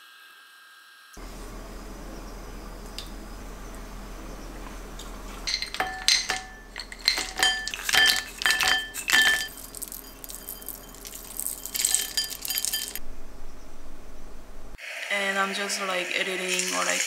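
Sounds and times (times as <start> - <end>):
berries clinking into bowl: 5.0 - 13.0.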